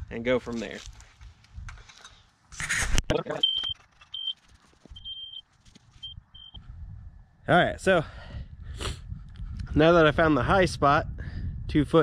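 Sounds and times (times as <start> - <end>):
laser receiver beeping: 3.3 - 4.4, 5.0 - 5.4, 6.0 - 6.6.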